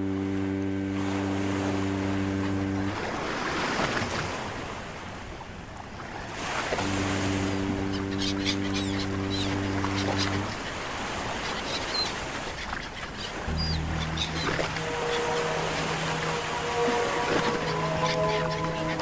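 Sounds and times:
low droning tone: 0.0s - 4.4s, 6.8s - 10.7s, 13.4s - 19.0s
surf-like noise: 0.0s - 19.0s.

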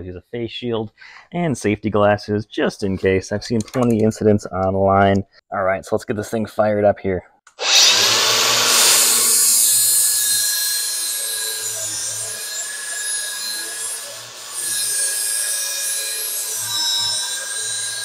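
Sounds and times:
angle grinder grinding steel: 7.6s - 18.0s.

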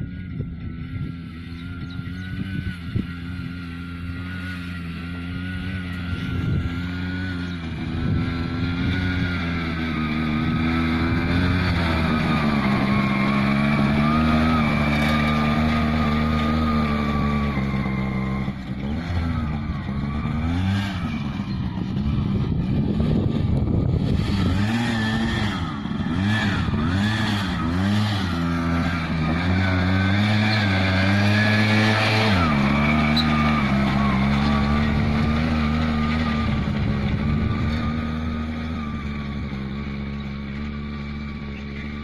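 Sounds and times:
crop sprayer engine running: 0.0s - 42.0s.

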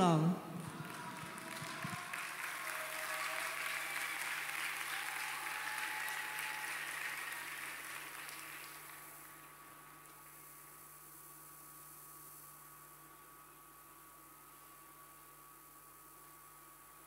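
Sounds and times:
audience applauding: 0.6s - 9.5s.

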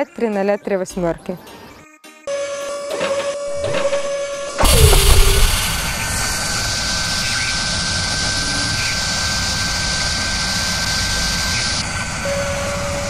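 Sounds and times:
thin high whine: 2.6s - 13.0s
lower steady tone: 3.4s - 6.9s
machine-like rushing noise: 3.5s - 8.4s.

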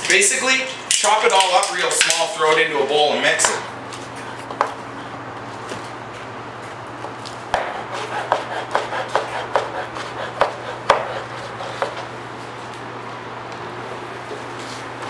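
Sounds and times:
knife chopping on plastic board: 7.0s - 12.1s.

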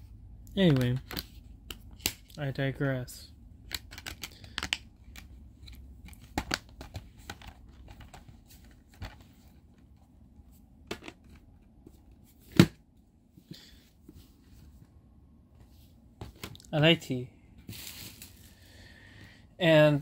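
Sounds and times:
disc cases clicking and tapping: 3.7s - 10.0s, 10.9s - 11.4s.

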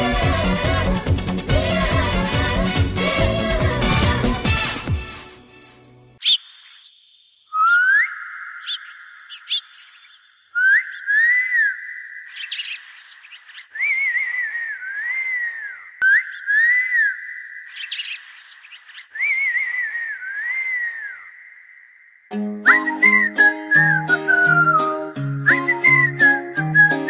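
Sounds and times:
whistled tune: 22.3s - 27.0s.

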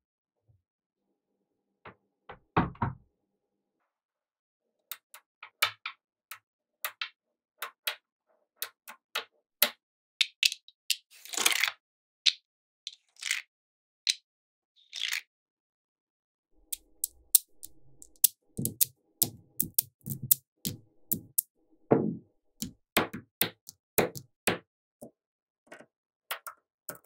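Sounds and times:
magnetic balls clicking: 16.6s - 21.5s.

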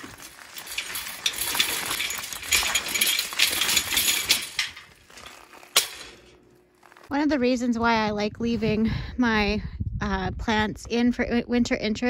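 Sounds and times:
wagon wheels crunching on gravel: 0.0s - 7.2s
footsteps on gravel: 0.0s - 7.4s.

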